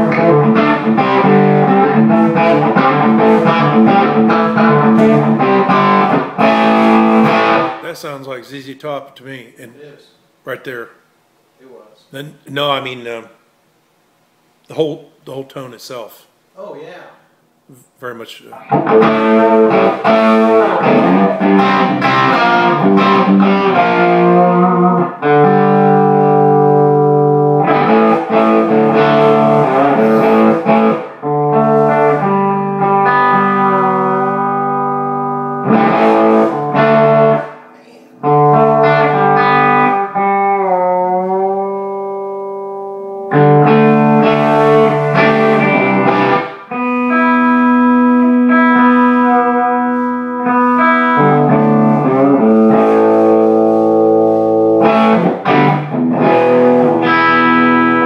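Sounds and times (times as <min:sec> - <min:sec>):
overdriven electric guitar: 0:00.0 - 0:07.8, 0:18.5 - 0:58.0.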